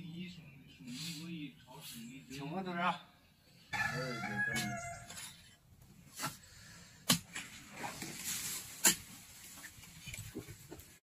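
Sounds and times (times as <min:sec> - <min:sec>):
rooster crowing: 0:03.7 - 0:05.4
shovel and hoe striking dirt: 0:04.5 - 0:05.4, 0:06.1 - 0:06.4, 0:07.0 - 0:09.7.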